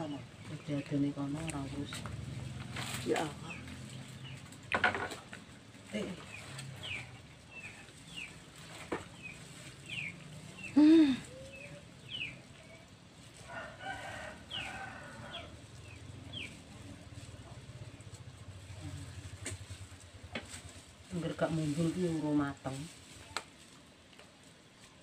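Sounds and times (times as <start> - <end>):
chickens peeping: 6.0 - 13.7, 15.3 - 19.7.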